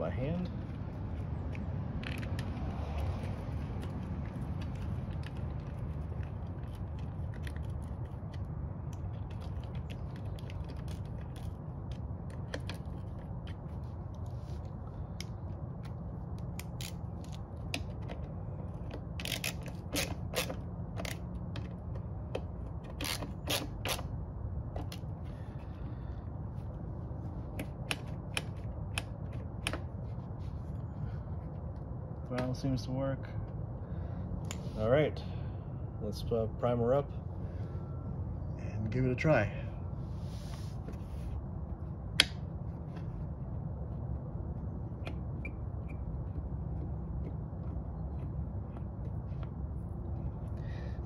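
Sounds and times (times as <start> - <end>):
steady low hum: 0.0 - 51.0
metal parts clicking and scraping: 19.2 - 21.2.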